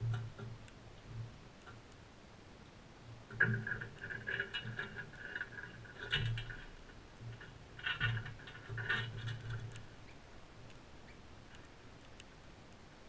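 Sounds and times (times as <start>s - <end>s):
parrots feeding: 3.2s - 12.9s.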